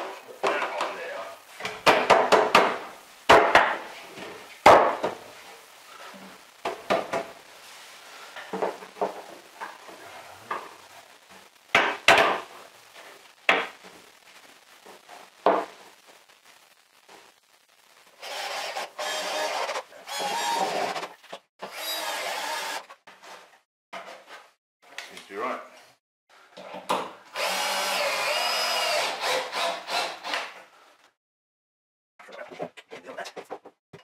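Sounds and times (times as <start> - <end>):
steady noise: 5.2 - 19.5.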